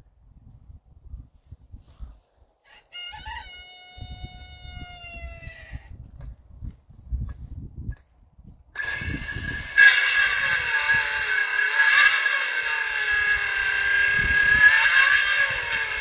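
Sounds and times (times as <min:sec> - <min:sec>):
rooster crowing: 0:02.6 - 0:05.9.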